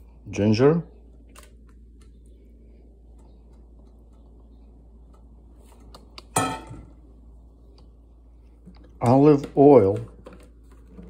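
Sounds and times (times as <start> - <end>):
low steady hum: 0.0 - 11.0
metal bowl clanking down: 6.4 - 6.9.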